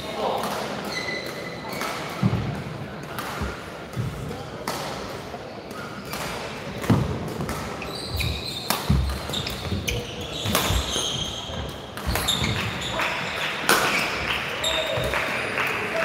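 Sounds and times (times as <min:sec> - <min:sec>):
shoes squeaking on court: 0:00.9 - 0:02.0, 0:06.9 - 0:15.1
racket hitting shuttlecock: 0:06.0 - 0:12.8, 0:13.6 - 0:14.2.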